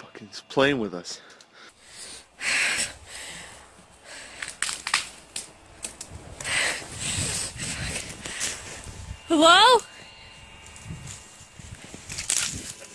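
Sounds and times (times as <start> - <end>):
twigs snapping: 2.8 - 6.9, 10.6 - 12.9
footsteps crunching through snow: 10.0 - 12.9.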